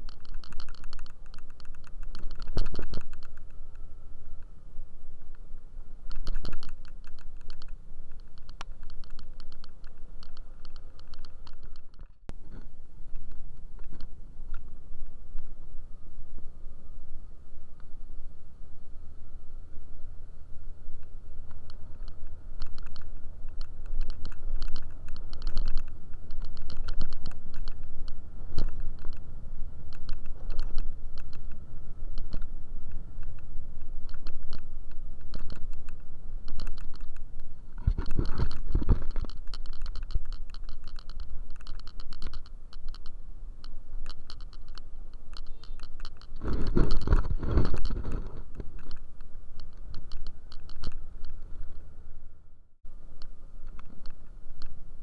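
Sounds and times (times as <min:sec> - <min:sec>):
rapid clicking rattle: 0:00.0 - 0:03.6, 0:06.1 - 0:12.2, 0:21.5 - 0:29.2, 0:37.8 - 0:51.4
scooter low rumble: 0:00.0 - 0:55.0.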